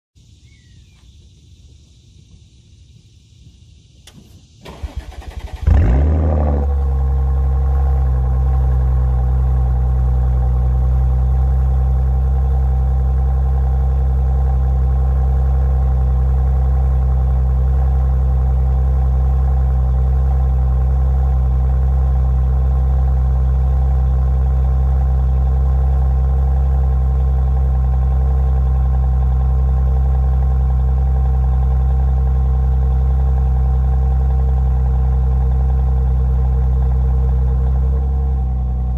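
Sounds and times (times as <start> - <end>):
car engine starting and idling: 4.0 - 38.9.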